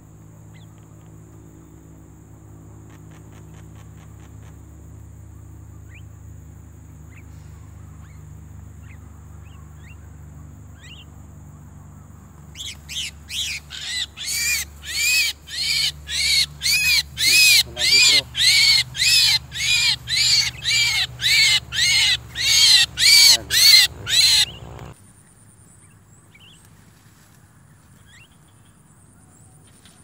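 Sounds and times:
faint bird chirps: 12.5 - 25.0
myna calling loudly: 13.7 - 24.9.

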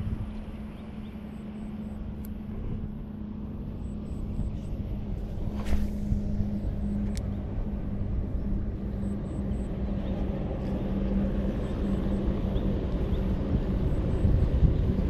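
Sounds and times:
engine droning: 0.0 - 15.0
fishing rod swish: 5.2 - 6.6.

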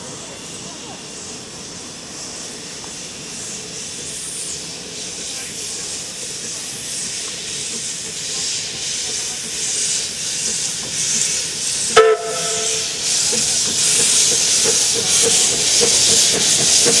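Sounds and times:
steam hissing: 0.0 - 17.0
steam whistle toot: 11.9 - 13.1.

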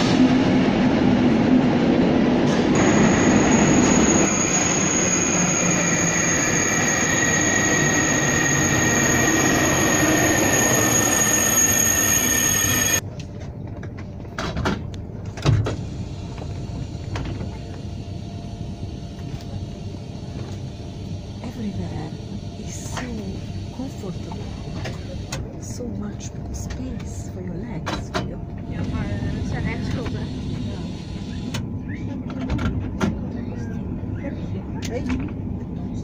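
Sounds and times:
train rolling noise: 0.0 - 36.0
train wheels squealing: 2.8 - 13.0.

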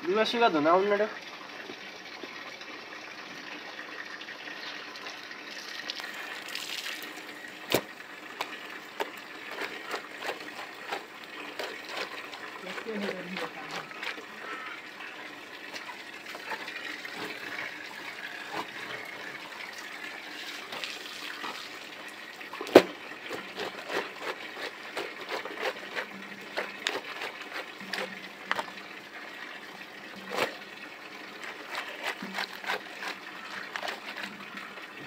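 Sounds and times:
water running from pipe spout: 0.0 - 35.0
wet clothes slapped on stone: 7.7 - 8.5.

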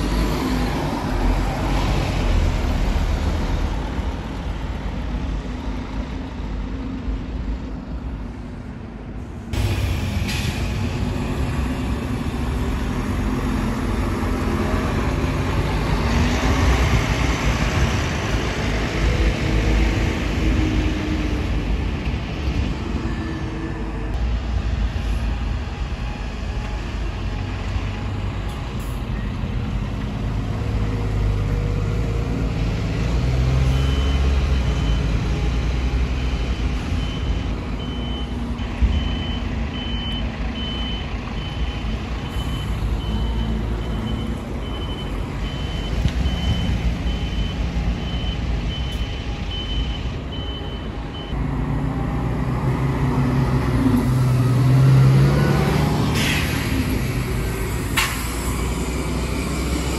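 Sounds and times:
buses driving past: 0.0 - 59.9
reversing alarm beeping: 33.7 - 35.5, 36.2 - 51.4.

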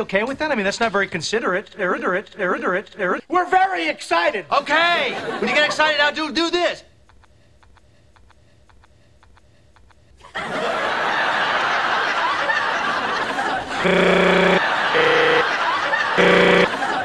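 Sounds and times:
studio audience laughing: 4.9 - 6.0, 10.2 - 17.0
blaring horn tone: 13.8 - 15.5, 16.2 - 16.7.

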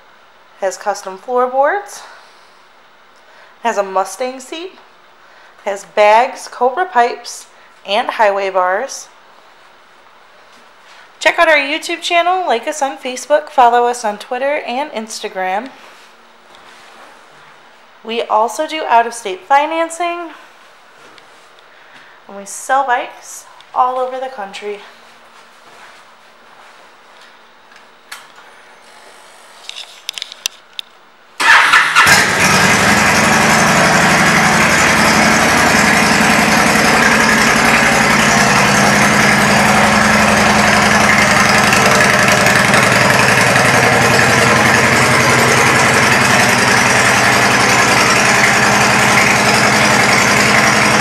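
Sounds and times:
motorcycle engine starting and idling: 31.4 - 51.0.

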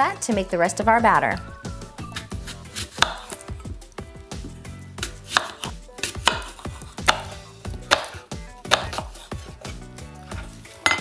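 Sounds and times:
knife chopping on wooden board: 2.1 - 3.4, 4.4 - 11.0.

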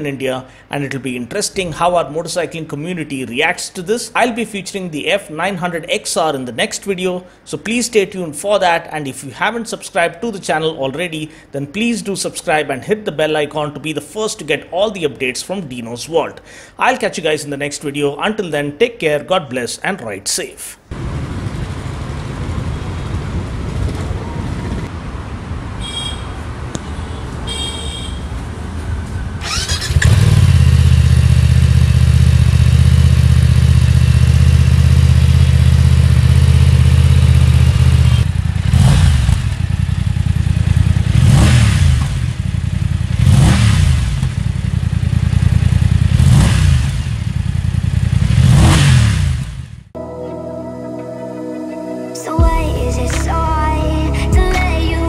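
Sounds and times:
motorcycle engine idling and revving: 20.9 - 24.9, 28.8 - 50.0.

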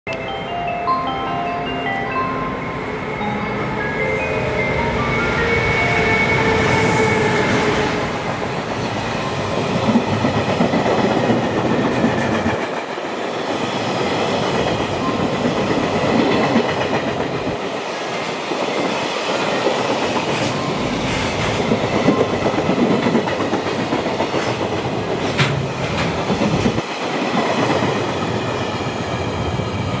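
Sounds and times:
steady tones: 0.1 - 10.2
train wheels rumbling on rails: 5.8 - 30.0.

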